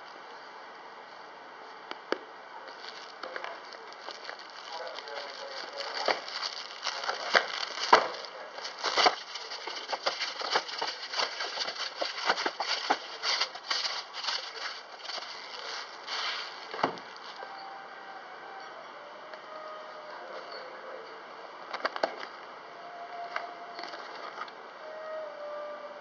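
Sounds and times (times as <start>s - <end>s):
plastic wrapping crinkling and tearing: 2.6s - 17.4s.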